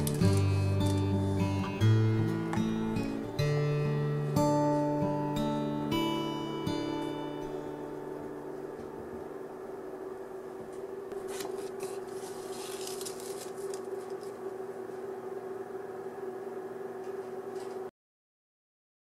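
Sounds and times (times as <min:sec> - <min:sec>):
paper rustling and scraping: 0:00.0 - 0:01.5, 0:11.1 - 0:14.4
steady low hum: 0:00.0 - 0:17.9.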